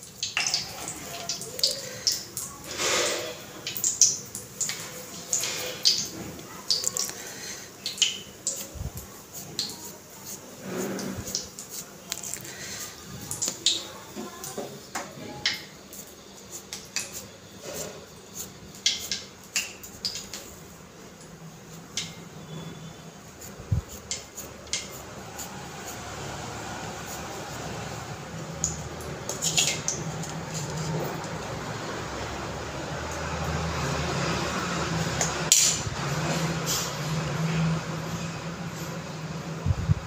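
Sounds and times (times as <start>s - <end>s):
hands patting soft food mixture: 5.9s - 14.8s, 15.5s - 20.6s, 21.3s - 31.7s.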